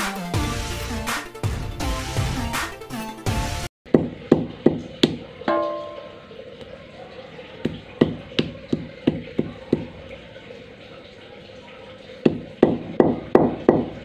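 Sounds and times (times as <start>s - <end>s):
stone pestle knocking on mortar: 3.9s - 6.0s, 7.7s - 9.9s, 12.3s - 14.0s.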